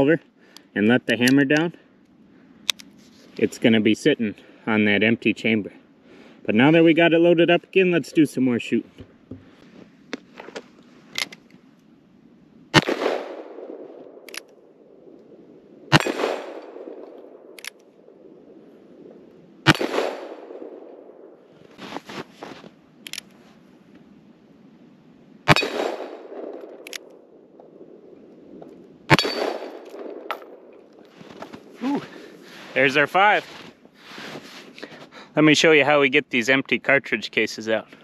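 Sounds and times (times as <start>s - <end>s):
revolver shots with echo: 12.7s - 13.8s, 15.9s - 17.0s, 19.6s - 20.9s, 25.5s - 26.5s, 29.1s - 30.6s
revolver hammer cocking clicks: 15.9s - 17.9s, 25.5s - 27.2s.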